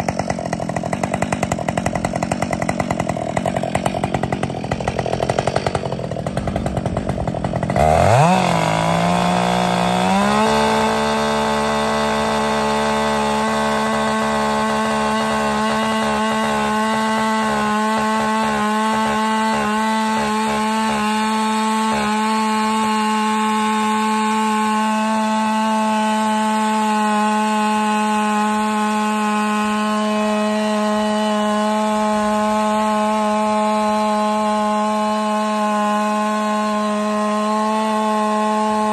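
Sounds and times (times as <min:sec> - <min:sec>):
chainsaw cutting a log: 0:00.0 - 0:38.9.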